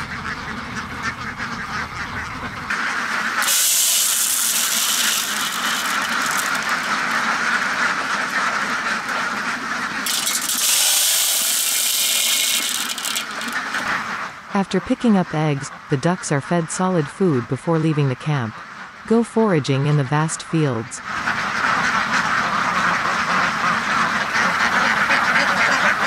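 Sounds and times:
ducks quacking: 0.0 - 26.0
loud steady hiss: 3.3 - 9.2, 10.0 - 14.0.

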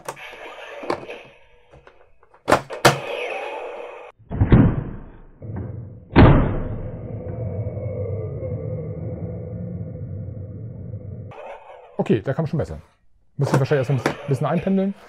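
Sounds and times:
heavier thumps: 4.2 - 7.5.

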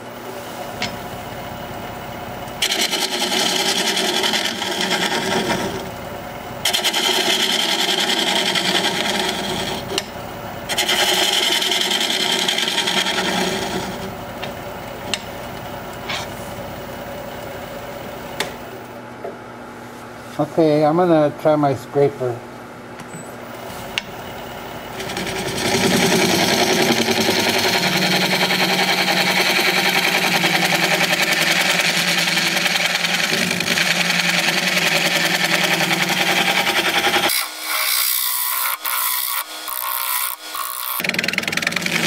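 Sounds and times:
lathe humming: 0.7 - 19.0, 23.5 - 42.0
gouge scraping spinning wood: 2.6 - 6.0, 6.6 - 18.6, 23.8 - 42.0.

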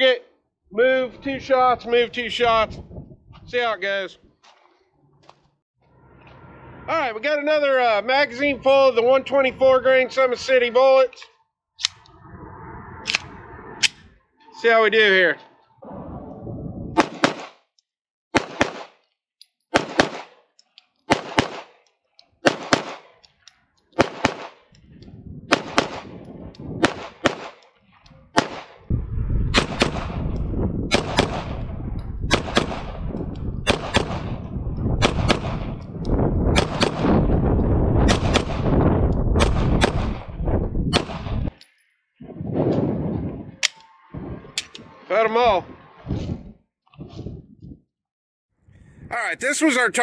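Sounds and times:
wind rumble on microphone: 1.0 - 4.4, 11.8 - 14.2, 15.8 - 17.1, 24.7 - 27.4, 28.9 - 41.6, 42.2 - 47.8, 48.7 - 49.2
pistol shots: 17.0 - 17.6, 18.3 - 19.0, 19.7 - 20.4, 21.1 - 21.8, 22.4 - 23.1, 24.0 - 24.6, 25.5 - 26.1, 26.8 - 27.6, 28.3 - 28.8, 29.5 - 30.2, 30.9 - 31.6, 32.3 - 33.0, 33.6 - 34.4, 35.0 - 35.8, 36.5 - 37.2, 38.0 - 38.7, 39.4 - 40.3.

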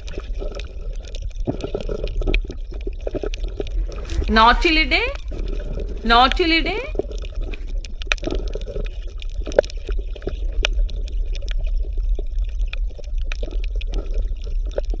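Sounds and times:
underwater bubbling and gurgling: 0.0 - 4.3, 7.0 - 15.0
low underwater rumble: 3.4 - 4.3.

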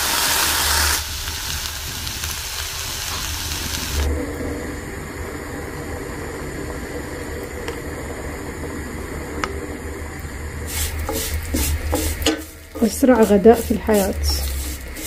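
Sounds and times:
hiss: 0.0 - 4.1, 10.6 - 15.0
low hum: 0.4 - 15.0.

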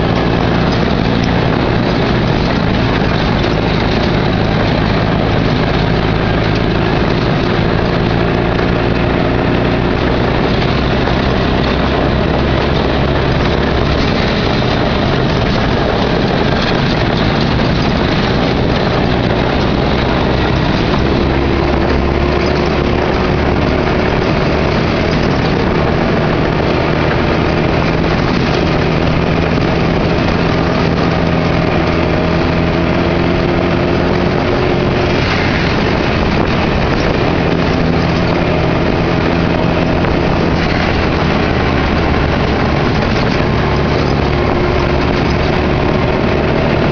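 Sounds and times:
cab rattling: 0.0 - 46.9
road noise: 0.0 - 46.9
vehicle engine running: 0.0 - 46.9.

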